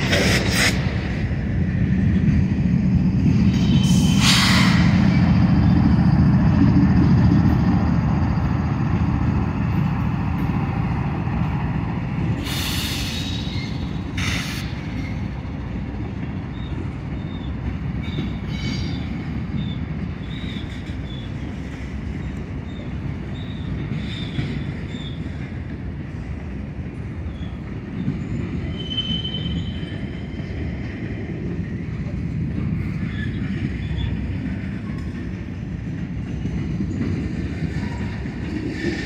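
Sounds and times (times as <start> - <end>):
diesel locomotive rumble: 0.0 - 39.0
train wheel squeals: 3.3 - 9.9, 12.3 - 26.3, 27.1 - 31.0, 32.6 - 35.4, 36.2 - 39.0.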